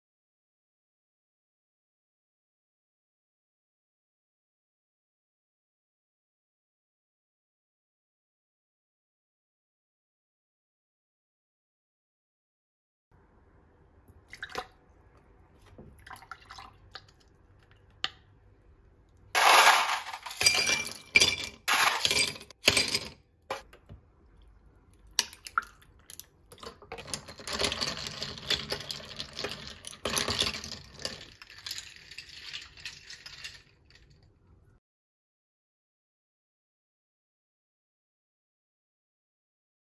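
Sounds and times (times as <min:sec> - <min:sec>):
liquid pouring over ice: 0:16.0 - 0:17.3
ice cubes clinking in a glass: 0:19.4 - 0:23.0, 0:26.6 - 0:34.2.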